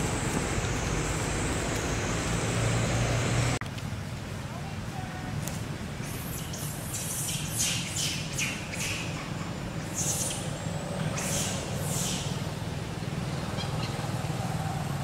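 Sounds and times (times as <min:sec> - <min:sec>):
hissy animal squawks: 0:11.1 - 0:12.4.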